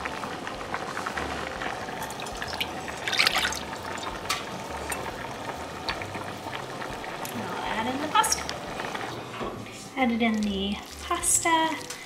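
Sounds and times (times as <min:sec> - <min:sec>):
sauce pouring and splashing: 0:00.0 - 0:07.3
sauce sizzling and bubbling: 0:00.0 - 0:12.0.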